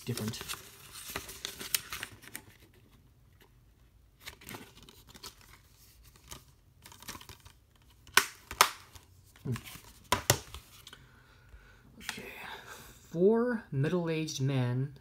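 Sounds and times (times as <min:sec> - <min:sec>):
paper rustling and crinkling: 0:00.0 - 0:03.5, 0:04.1 - 0:10.9.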